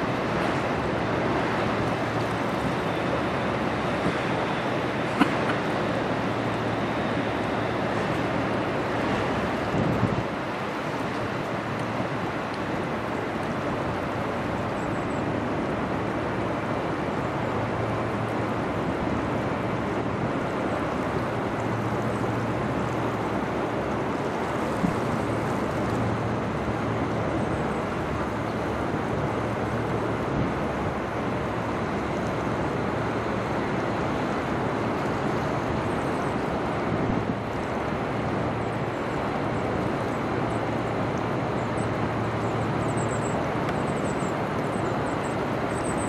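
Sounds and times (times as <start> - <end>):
low ship hum: 0.0 - 46.0
water rushing along ship hull: 0.0 - 46.0
wind on microphone: 6.0 - 15.1.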